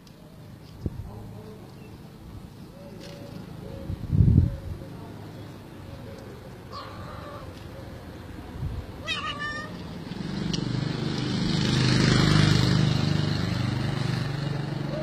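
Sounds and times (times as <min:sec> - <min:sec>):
cat meowing: 0:09.0 - 0:09.8.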